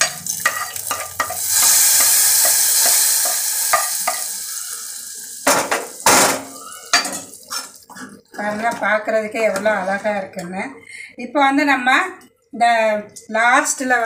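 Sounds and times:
metal ladle clattering on pan: 0:00.0 - 0:04.3
hot oil sizzling: 0:00.0 - 0:07.9.

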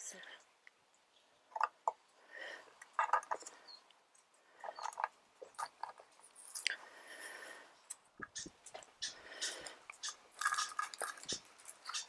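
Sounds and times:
potting soil crunching: 0:09.9 - 0:12.0.

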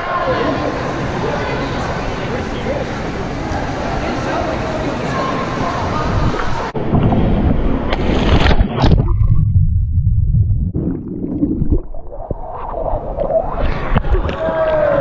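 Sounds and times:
muffled underwater rumbling: 0:06.0 - 0:15.0
camera splashing into pool water: 0:07.9 - 0:09.4.

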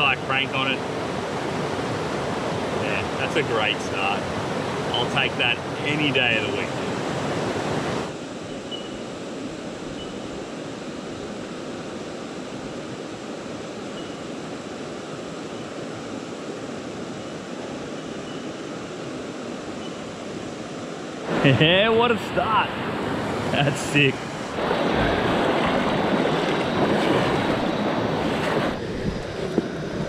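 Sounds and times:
creek water underwater: 0:24.2 - 0:30.0.

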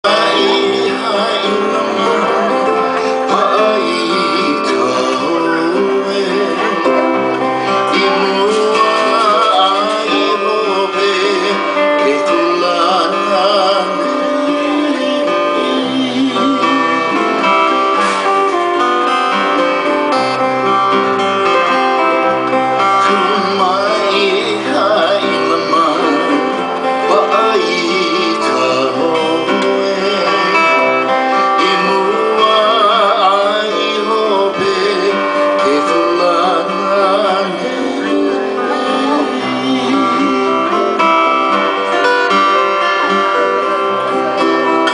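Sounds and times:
man singing: 0:00.0 - 0:44.9
slack key guitar: 0:00.0 - 0:44.9
ukulele playing: 0:14.6 - 0:27.5.

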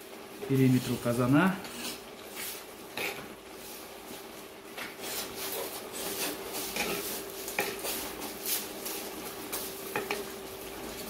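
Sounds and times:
metal skimmer scraping rice in pot: 0:01.6 - 0:03.9, 0:04.9 - 0:10.3.

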